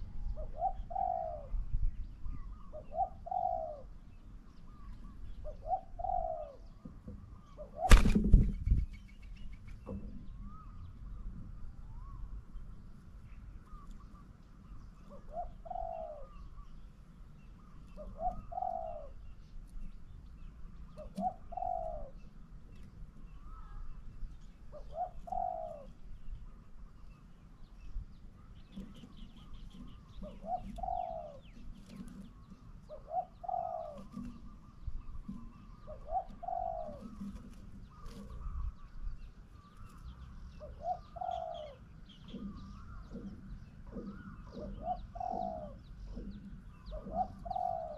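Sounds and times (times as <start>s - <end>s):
dove cooing: 0.0s - 1.6s, 2.3s - 9.0s, 15.0s - 16.7s, 17.6s - 19.4s, 20.9s - 22.4s, 24.6s - 26.1s, 28.7s - 38.9s, 39.8s - 47.9s.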